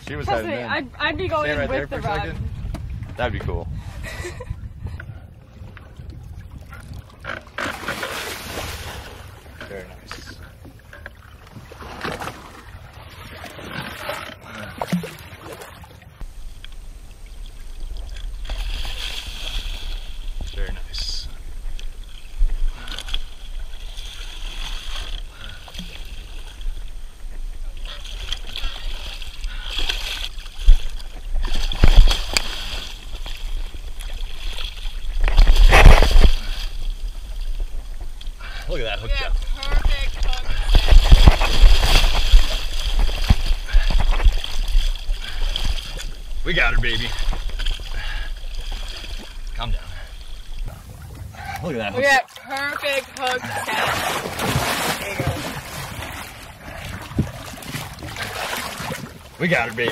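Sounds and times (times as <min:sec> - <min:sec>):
water splashing against boat: 0:00.0 - 0:59.9
wind rumble on microphone: 0:00.9 - 0:07.3, 0:30.5 - 0:48.6, 0:56.7 - 0:58.1
fish thrashing at surface: 0:39.6 - 0:46.0, 0:53.0 - 0:59.0
fish splashing in water: 0:52.2 - 0:59.4.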